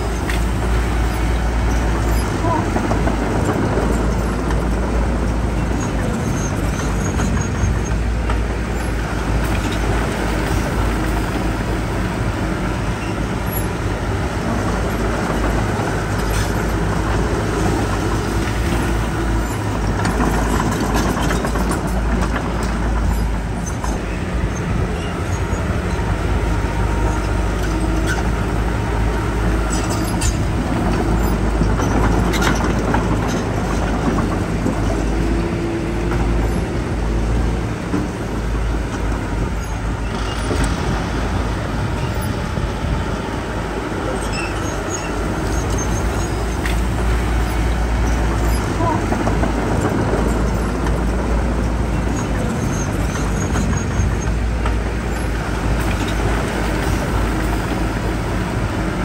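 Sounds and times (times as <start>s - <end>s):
diesel machinery engine drone: 0.0s - 59.0s.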